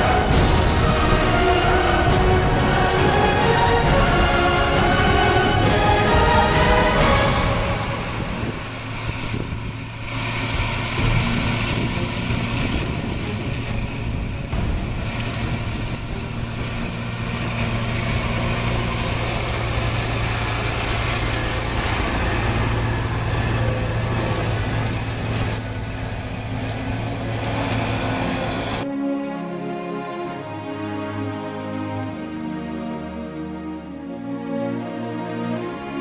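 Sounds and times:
big tyres rumbling: 0:00.0 - 0:28.8
diesel engine humming under load: 0:00.0 - 0:28.8
cultivator working soil: 0:04.0 - 0:28.8.

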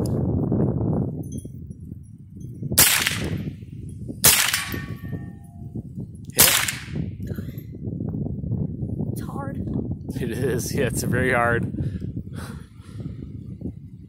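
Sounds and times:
rifle shots with echo: 0:02.8 - 0:03.5, 0:04.2 - 0:05.3, 0:06.4 - 0:07.1.

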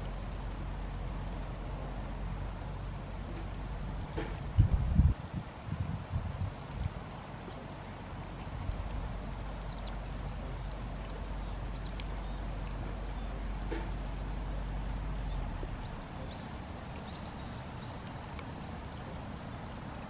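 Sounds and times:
wind rumbling on microphone: 0:00.0 - 0:20.0
small birds chirping: 0:05.1 - 0:20.0.

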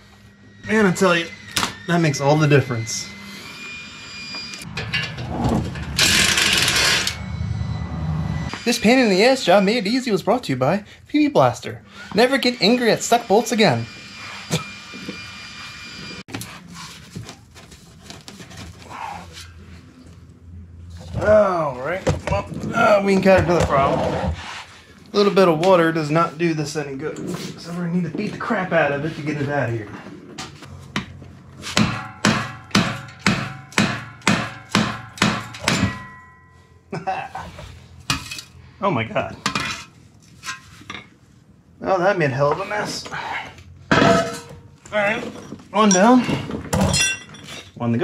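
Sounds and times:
metal pipe ringing: 0:00.1 - 0:10.3, 0:31.8 - 0:36.9, 0:43.9 - 0:44.8.

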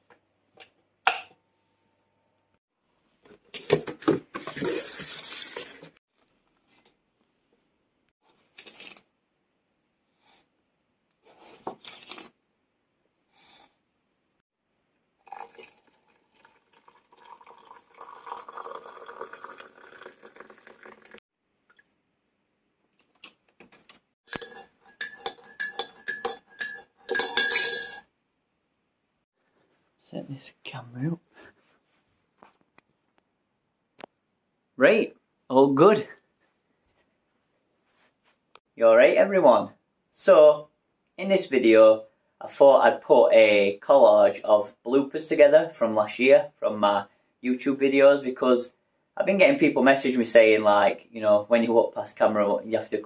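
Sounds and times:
hard objects clinking: 0:24.3 - 0:28.0.

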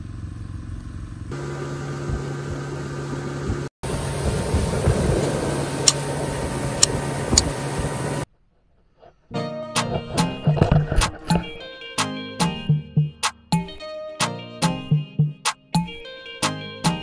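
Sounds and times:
boat engine humming: 0:00.0 - 0:08.3
water rushing past hull: 0:03.8 - 0:08.2.

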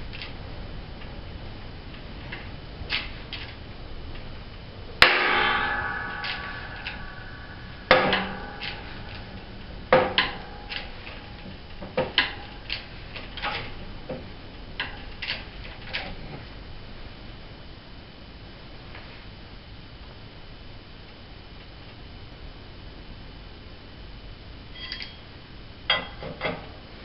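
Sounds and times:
hydraulic press metal clanks: 0:05.0 - 0:12.6.

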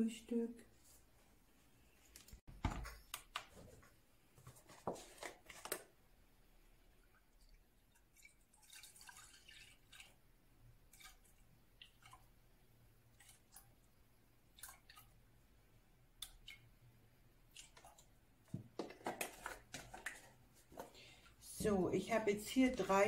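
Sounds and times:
small drips and splashes: 0:06.9 - 0:15.4, 0:16.1 - 0:18.5
milk pouring into saucepan: 0:07.0 - 0:12.4.

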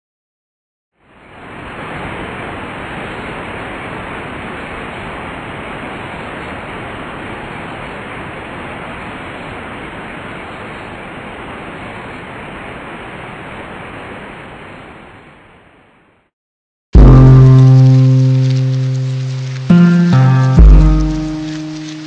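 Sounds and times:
waterfall rushing: 0:17.0 - 0:22.0.

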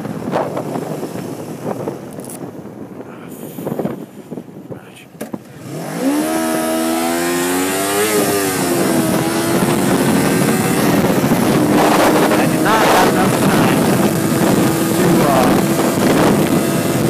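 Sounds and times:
wind noise on microphone: 0:00.0 - 0:17.0
motorcycle engine revving: 0:05.4 - 0:17.0.

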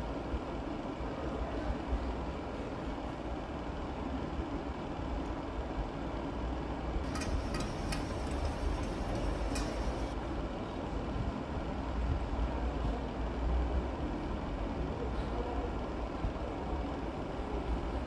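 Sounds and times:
kitchen background rumble: 0:07.0 - 0:10.2.

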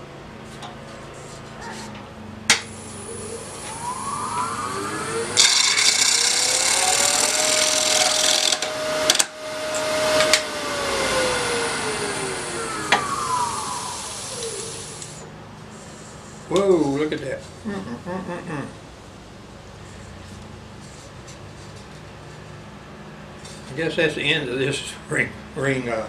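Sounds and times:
wood lathe motor hum: 0:02.7 - 0:15.3
turning tool rasping on wood: 0:05.4 - 0:08.7.

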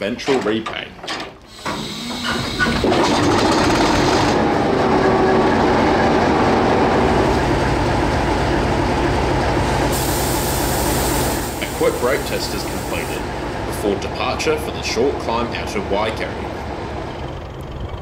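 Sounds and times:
diesel locomotive engine running: 0:01.5 - 0:18.0
high hiss: 0:09.9 - 0:13.3.

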